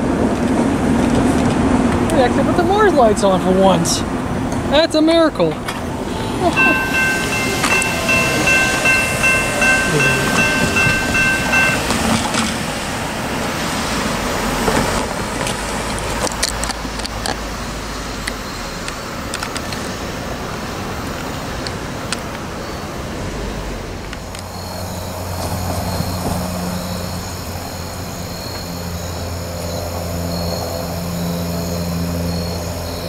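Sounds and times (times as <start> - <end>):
road vehicle rumbling past: 0.0 - 33.0
distant locomotive horn: 6.0 - 12.8.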